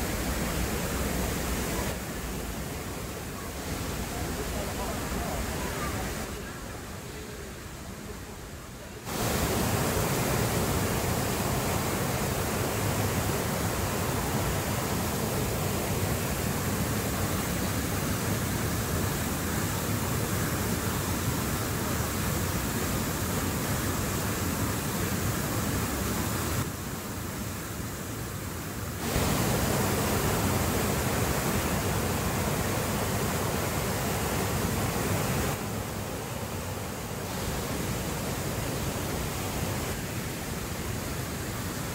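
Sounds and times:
water rushing over rocks: 0:00.0 - 0:41.9.

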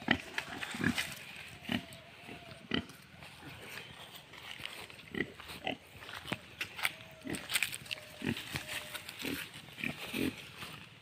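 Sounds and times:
pig grunting: 0:08.0 - 0:10.5.

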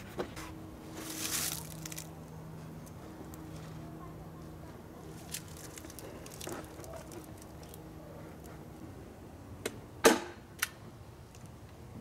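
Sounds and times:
loud sharp snap: 0:09.6 - 0:10.8.

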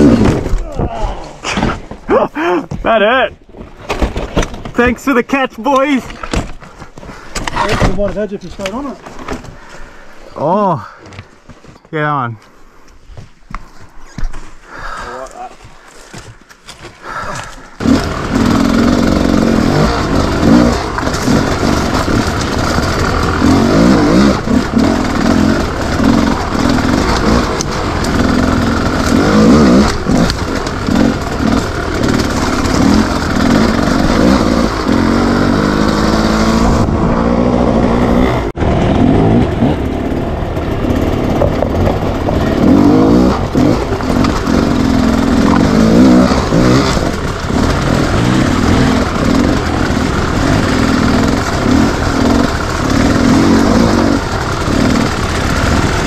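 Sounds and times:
motorcycle engine revving: 0:00.0 - 0:01.2, 0:17.1 - 0:56.0.

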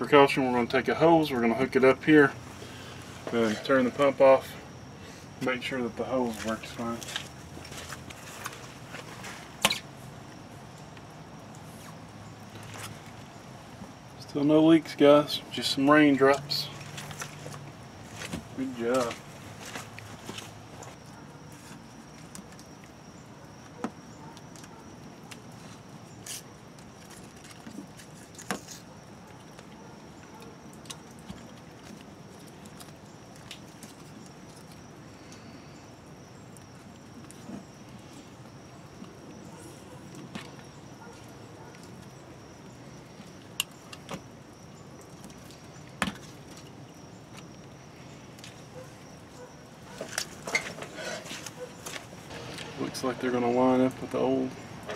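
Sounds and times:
low steady background noise: 0:00.0 - 0:54.9.

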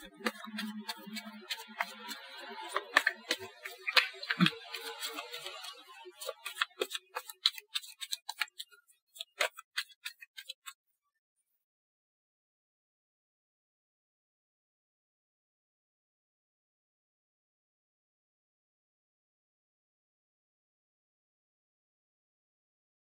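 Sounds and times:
cards being shuffled: 0:00.0 - 0:10.8.

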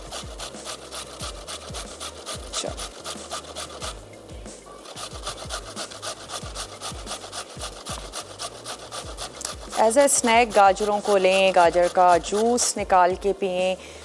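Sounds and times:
carrot grating on a grater: 0:00.0 - 0:04.0, 0:04.7 - 0:13.1.

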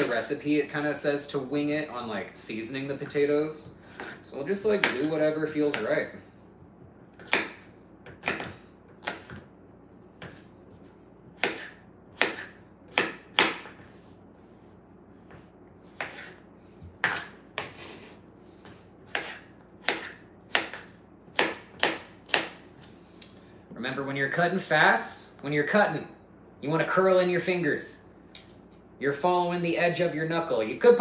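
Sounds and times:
knife chopping on cutting board: 0:03.9 - 0:06.0, 0:07.2 - 0:09.5, 0:10.2 - 0:10.8, 0:11.4 - 0:14.1, 0:15.2 - 0:17.8, 0:18.7 - 0:22.8.

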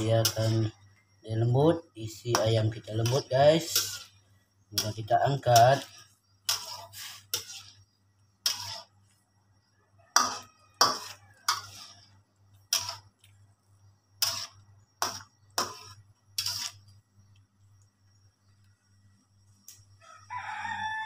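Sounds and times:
metal spatula scraping a wok: 0:00.0 - 0:00.8, 0:01.4 - 0:09.2, 0:10.1 - 0:13.3, 0:14.2 - 0:17.0.

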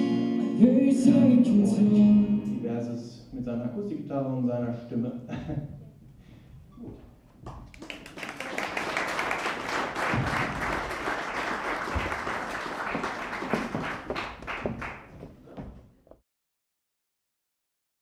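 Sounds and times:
audience applauding: 0:07.5 - 0:15.4.

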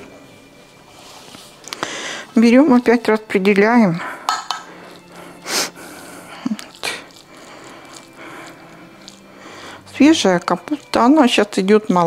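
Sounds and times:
soft scrapes: 0:00.8 - 0:01.6.

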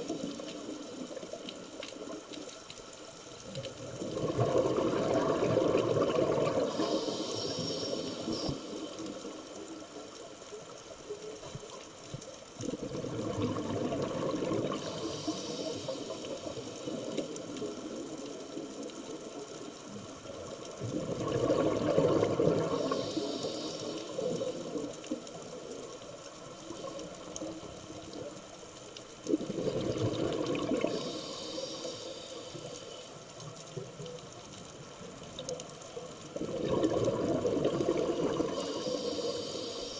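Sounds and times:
exhaled bubbles rushing: 0:03.6 - 0:08.5, 0:12.6 - 0:15.1, 0:20.5 - 0:23.0, 0:29.2 - 0:31.2, 0:36.3 - 0:39.0
regulator hiss: 0:06.3 - 0:10.3, 0:14.6 - 0:19.1, 0:22.2 - 0:28.3, 0:30.7 - 0:33.5, 0:38.3 - 0:39.9.

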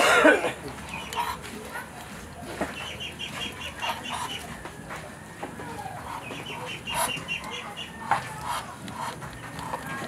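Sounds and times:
chickens clucking: 0:00.5 - 0:10.0.

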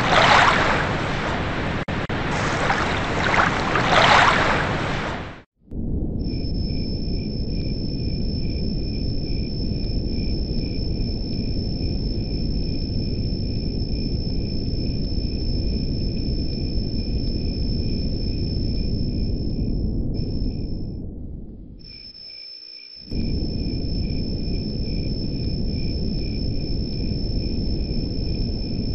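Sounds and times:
crickets chirping: 0:00.0 - 0:01.7, 0:06.0 - 0:28.9
constant low hiss: 0:06.3 - 0:28.9.

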